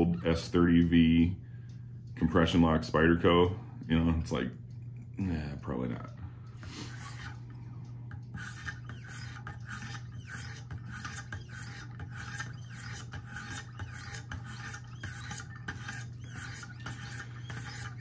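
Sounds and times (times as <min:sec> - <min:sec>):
steady low hum: 0:00.0 - 0:18.0
sharpening stones rasping on blade: 0:06.6 - 0:07.4, 0:08.3 - 0:18.0.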